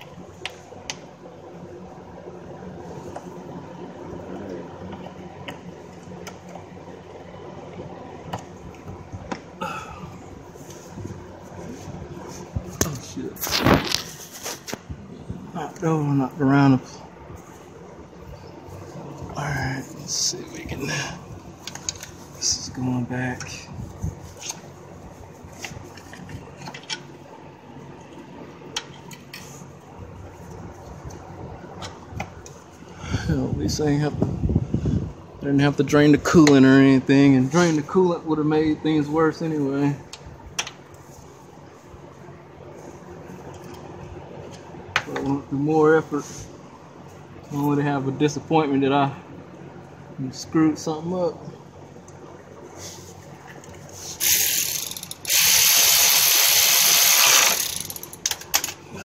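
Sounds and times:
steady hum: 0.0 - 59.0.

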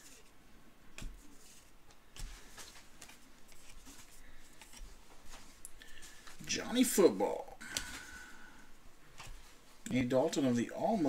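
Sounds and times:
cards sliding and rustling: 0.0 - 0.4, 1.0 - 6.4.

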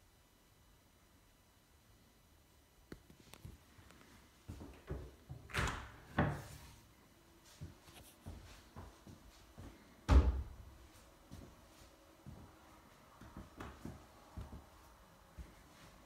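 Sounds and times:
door thud: 10.1 - 10.6.

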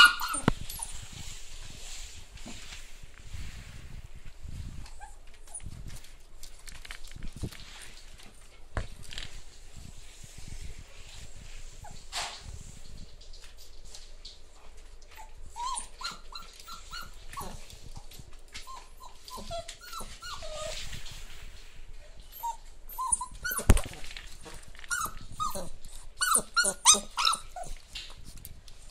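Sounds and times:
puppies yelping: 0.0 - 0.9, 24.9 - 27.7.

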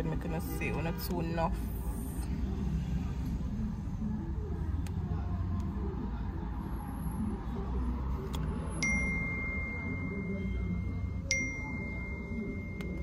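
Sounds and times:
chime dings: 8.8 - 13.0.

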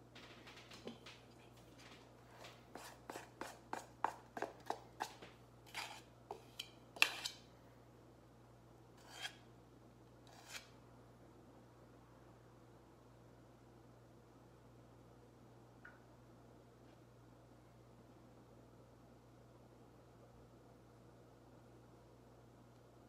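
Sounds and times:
spoon scraping steel bowl: 2.8 - 7.4, 9.0 - 9.4, 10.3 - 10.7.

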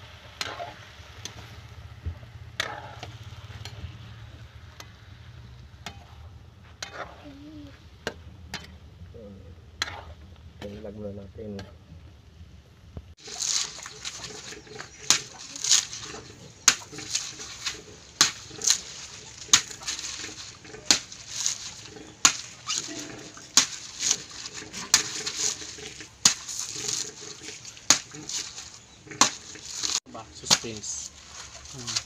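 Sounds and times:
knife striking coconut: 16.7 - 18.9, 20.9 - 25.4, 26.2 - 27.0, 27.9 - 28.5, 30.4 - 30.9.

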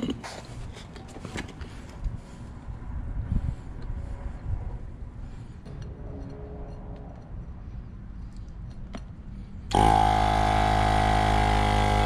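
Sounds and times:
electric tire inflator running: 9.7 - 12.0.

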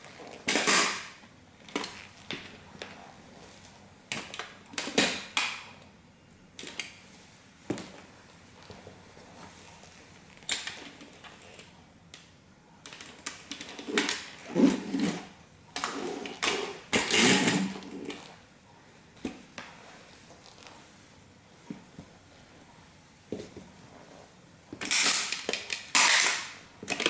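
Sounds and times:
toy car creaking and crackling: 24.8 - 27.0.

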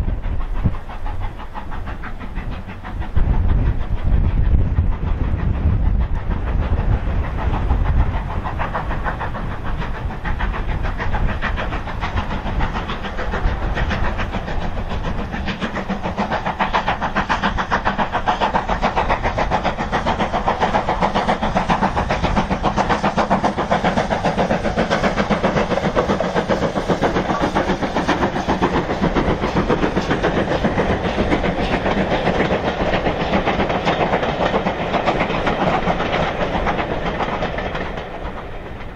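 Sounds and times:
low rumble: 0.0 - 16.8
steam locomotive exhaust beats: 0.0 - 38.9.

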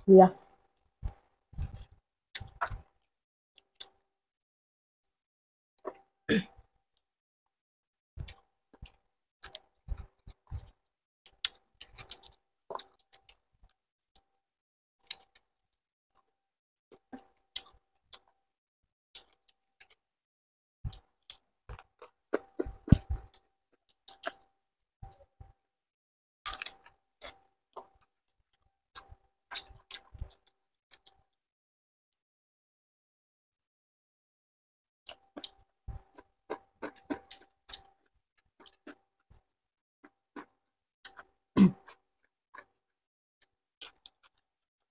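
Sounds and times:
people chewing with lip smacks: 1.0 - 4.0, 8.2 - 14.3, 16.9 - 18.4, 19.2 - 20.0, 20.9 - 24.5, 26.5 - 31.3, 35.1 - 42.0, 43.8 - 44.5.

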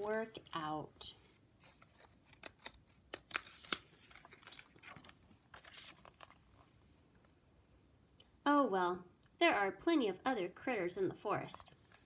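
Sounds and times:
book pages turning: 0.0 - 6.8.

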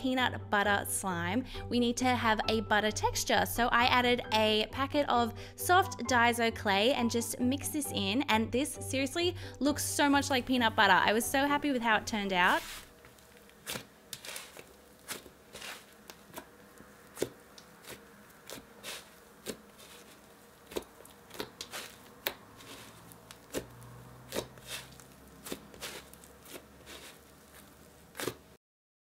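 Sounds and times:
sticky slime clicks and crackles: 20.7 - 22.4.

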